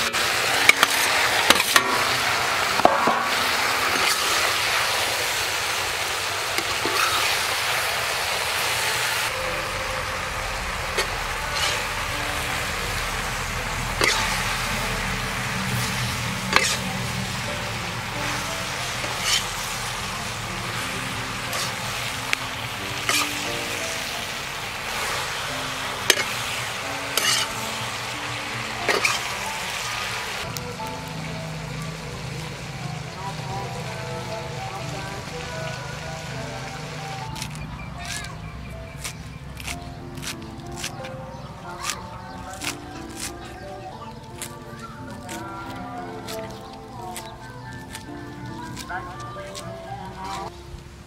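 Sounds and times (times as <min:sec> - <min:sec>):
food sizzling in a wok: 0:00.0 - 0:37.3
metal spatula scraping pan: 0:00.6 - 0:04.5, 0:10.9 - 0:12.0, 0:14.0 - 0:15.0, 0:15.8 - 0:17.1, 0:18.4 - 0:19.8, 0:21.5 - 0:21.9, 0:23.0 - 0:23.4, 0:26.0 - 0:26.5, 0:27.1 - 0:27.8, 0:28.8 - 0:29.4.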